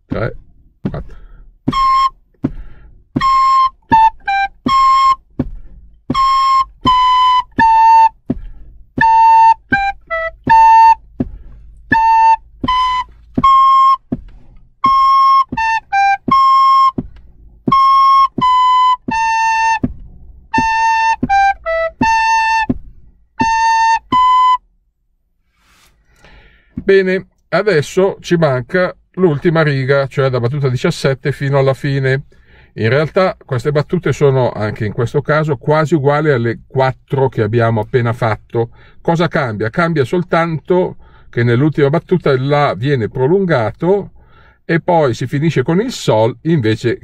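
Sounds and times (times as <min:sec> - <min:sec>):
recorders playing a simple tune: 0:01.7 - 0:02.6, 0:03.2 - 0:05.5, 0:06.1 - 0:24.7.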